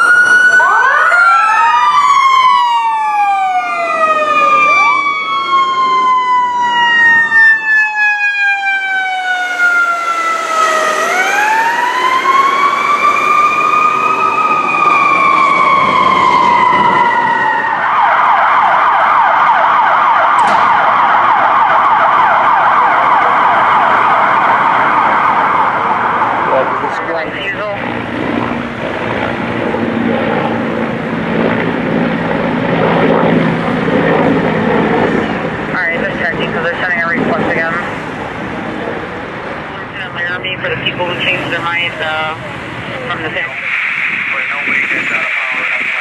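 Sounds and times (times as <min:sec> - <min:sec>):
fast electronic siren yelp: 0:00.0 - 0:27.9
siren winding down and up: 0:00.0 - 0:31.9
wailing sirens: 0:00.0 - 0:46.0.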